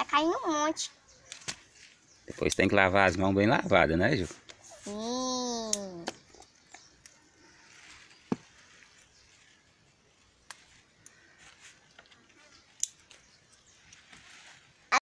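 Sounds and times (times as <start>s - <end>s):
leaves rustling: 1.2s - 15.0s
scissors snipping stems: 5.5s - 7.2s.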